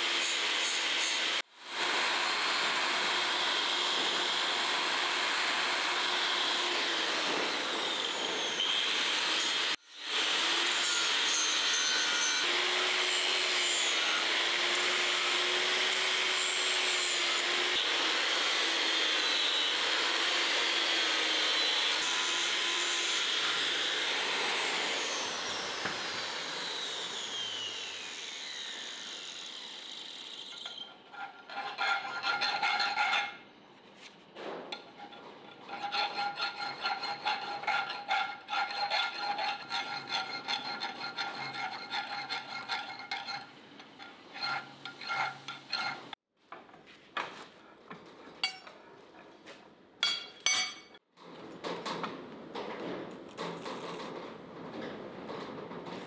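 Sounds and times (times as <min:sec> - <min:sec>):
angle grinder grinding steel: 0:06.4 - 0:33.4, 0:34.9 - 0:46.2.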